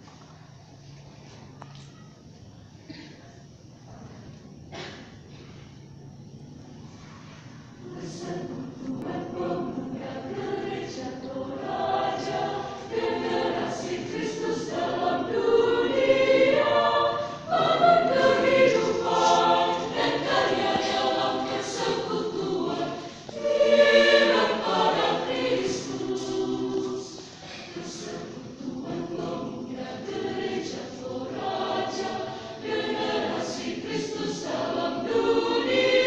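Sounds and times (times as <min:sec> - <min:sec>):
choir singing: 0:07.7 - 0:36.0.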